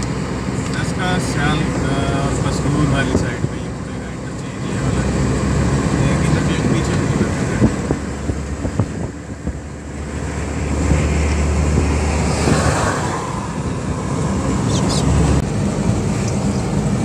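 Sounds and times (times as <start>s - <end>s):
car driving at motorway speed: 0.0s - 17.0s
wind rushing past: 7.5s - 15.4s.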